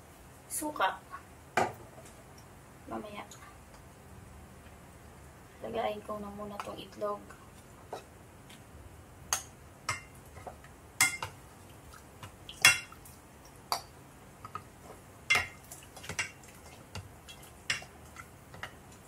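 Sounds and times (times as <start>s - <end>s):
spoon and eggs clinking on a pot: 11.0s - 11.4s, 12.6s - 13.0s, 15.3s - 16.4s, 17.3s - 17.9s.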